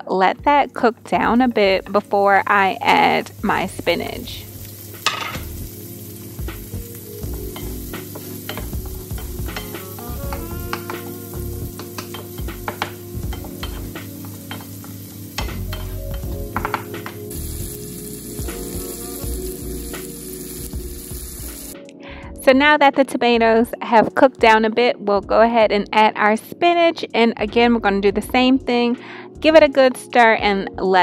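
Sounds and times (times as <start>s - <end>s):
food sizzling in oil: 1.0s - 21.8s
wooden spoon tapping pan: 7.3s - 11.1s, 11.8s - 17.2s.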